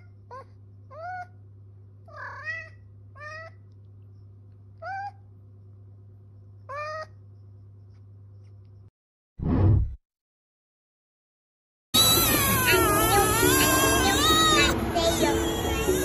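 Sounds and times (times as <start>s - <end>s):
cat meowing: 2.1s - 3.6s, 6.7s - 7.2s, 12.0s - 16.0s.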